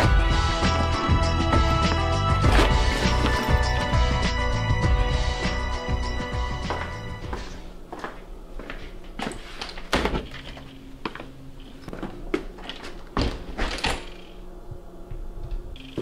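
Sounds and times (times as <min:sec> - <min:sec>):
footsteps: 0:00.8 - 0:04.0, 0:06.5 - 0:13.8.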